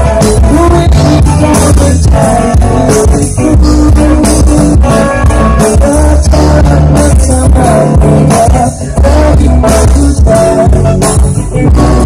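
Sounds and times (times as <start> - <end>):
live band playing: 0.0 - 12.0
person singing: 0.0 - 12.0.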